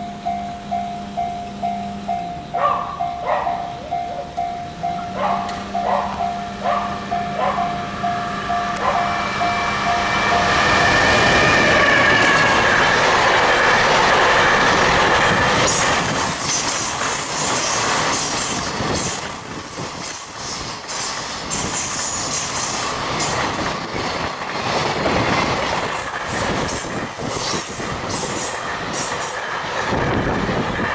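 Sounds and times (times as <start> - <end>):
electric locomotive whine: 0.0 - 30.9
high wheel squeal: 8.9 - 23.4
train wheels clacking: 9.9 - 30.9.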